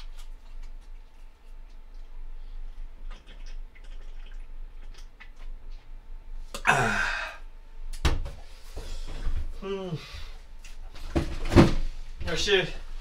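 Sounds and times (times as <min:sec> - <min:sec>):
person sighing: 0:06.6 - 0:07.4, 0:09.6 - 0:10.3.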